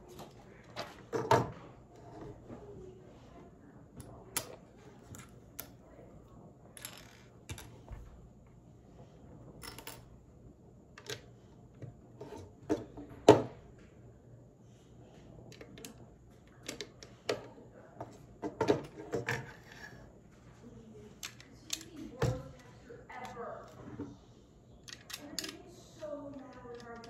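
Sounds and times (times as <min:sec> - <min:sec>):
plastic bricks clicking: 0:24.8 - 0:25.6, 0:26.3 - 0:27.0.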